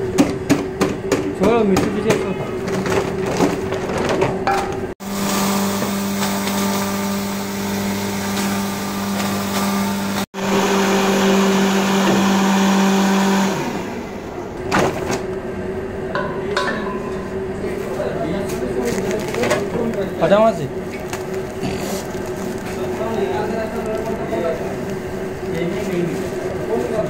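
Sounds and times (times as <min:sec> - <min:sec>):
wet grinder running: 0:05.0 - 0:14.5, 0:20.4 - 0:27.0
handling sounds: 0:17.8 - 0:20.2, 0:20.8 - 0:27.0.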